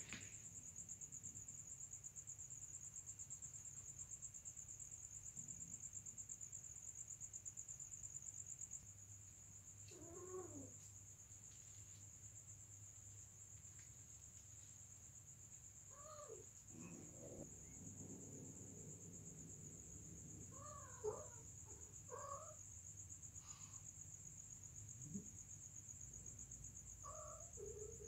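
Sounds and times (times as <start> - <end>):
crickets trilling: 0.0 - 28.0
cat yowl: 9.9 - 10.7, 15.9 - 18.4, 20.4 - 22.6.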